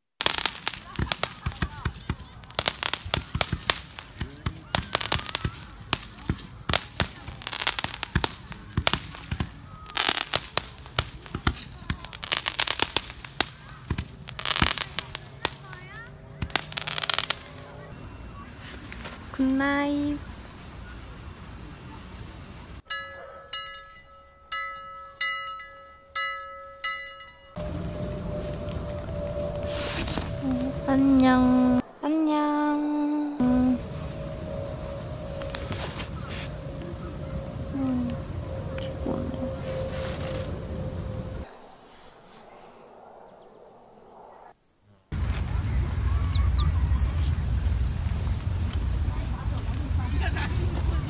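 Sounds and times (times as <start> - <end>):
background hiss: 0.0 - 23.0, 23.8 - 51.0
crickets chirping: 0.2 - 51.0
small birds chirping: 13.4 - 24.1, 24.7 - 51.0
steady held tone: 22.8 - 41.8
low rumble: 27.6 - 32.0, 33.3 - 44.5.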